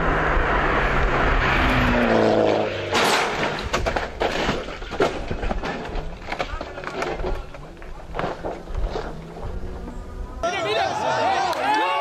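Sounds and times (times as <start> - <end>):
car engine revving: 0.0 - 3.7
loud car crash: 0.7 - 6.1.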